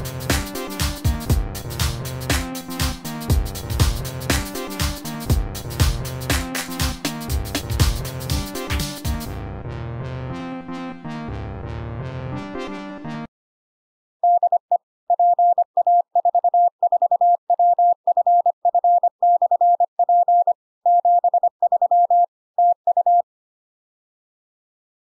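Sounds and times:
morse code tone: 14.2s - 23.2s.

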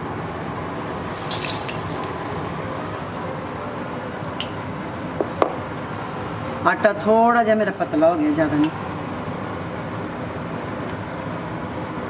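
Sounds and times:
hot oil sizzling: 1.0s - 6.8s.

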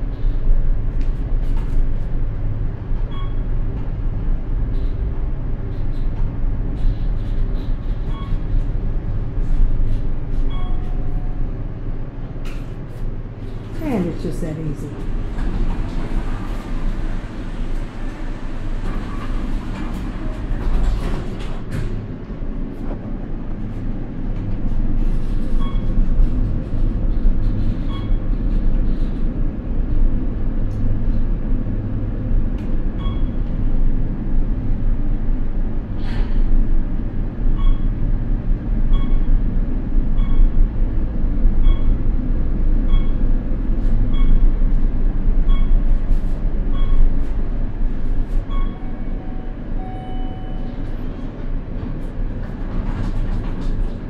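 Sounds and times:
elevator car rumble and hum: 0.0s - 54.0s
short electronic beeps: 48.5s - 50.7s
long electronic tone: 48.6s - 50.8s.

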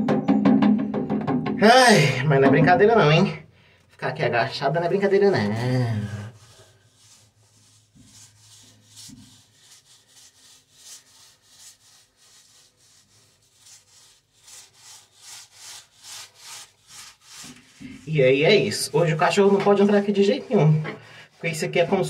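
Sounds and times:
paint roller swishing on wall: 6.2s - 22.0s.

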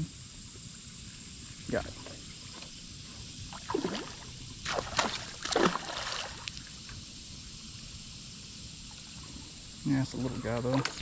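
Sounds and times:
fish splashing in water: 3.5s - 6.7s.

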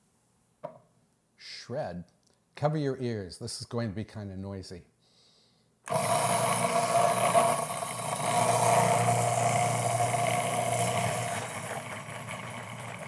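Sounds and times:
food processor whirring: 5.9s - 13.0s.

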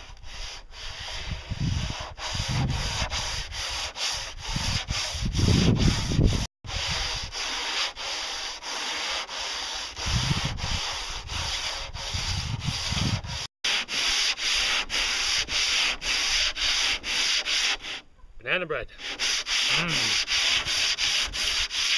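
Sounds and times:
sandpaper rubbing on wood: 0.0s - 18.0s, 19.0s - 21.9s.

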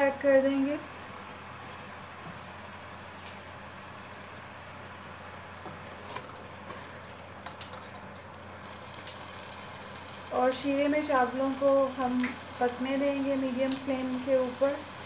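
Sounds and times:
syrup boiling in a pot: 0.0s - 15.0s.

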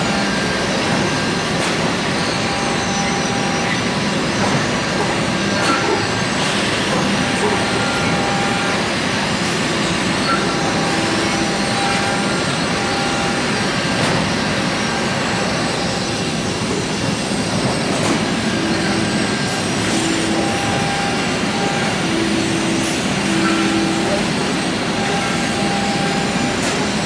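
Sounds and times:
factory machinery hum and hiss: 0.0s - 27.0s
robot arm servo whining: 9.7s - 13.7s.

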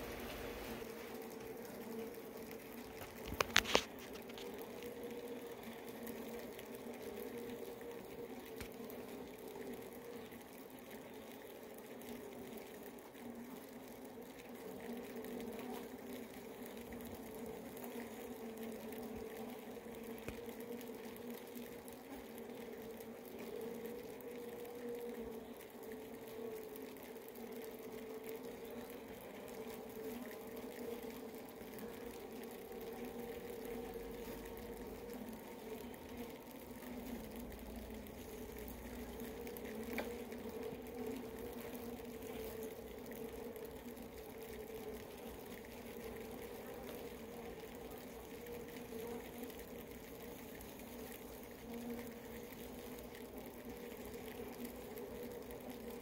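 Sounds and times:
honeybee colony humming: 0.0s - 56.0s
faint tick: 19.9s - 21.6s, 38.6s - 42.7s.

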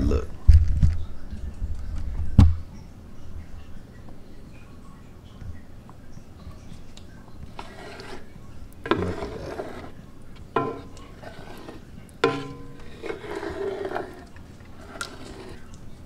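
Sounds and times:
spoon scraping a pot: 7.4s - 16.0s
spoon knocking on a pot: 10.6s - 14.0s.

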